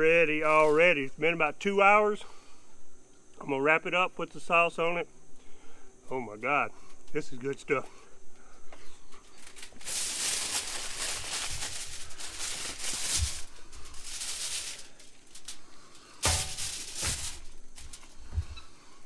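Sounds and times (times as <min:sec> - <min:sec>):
aluminum foil crinkling: 0:09.2 - 0:18.3.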